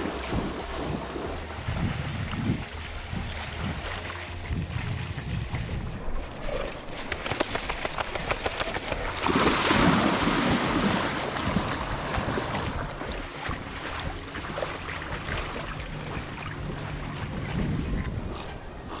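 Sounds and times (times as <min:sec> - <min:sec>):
footsteps on wet sand: 0:00.0 - 0:06.1, 0:10.0 - 0:19.0
wind on microphone: 0:00.0 - 0:06.1, 0:15.8 - 0:19.0
splashing shallow water: 0:00.0 - 0:19.0.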